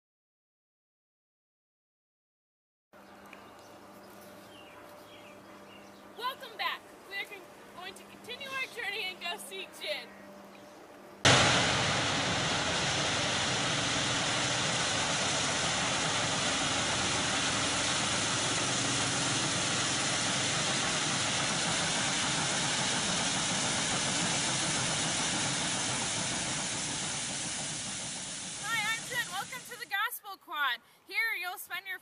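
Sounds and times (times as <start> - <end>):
steam locomotive working hard: 11.3 - 29.9.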